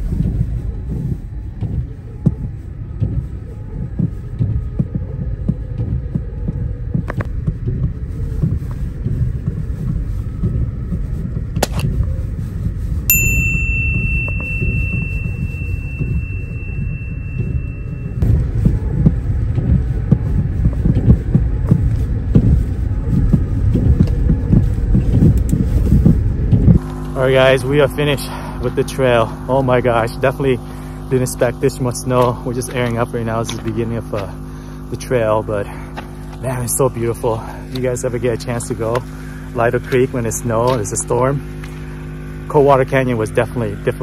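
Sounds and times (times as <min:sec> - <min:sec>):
engine and tyres rumbling: 0:00.0 - 0:44.0
high steady beep: 0:13.1 - 0:18.2.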